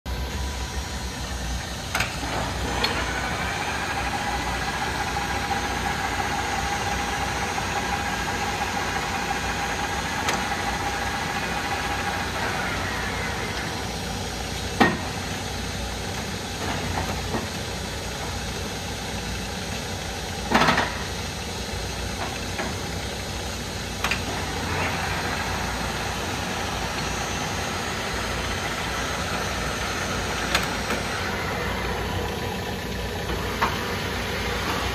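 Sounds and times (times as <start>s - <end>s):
lathe running: 0.1s - 16.4s, 21.7s - 34.9s
lathe whine: 0.1s - 34.9s.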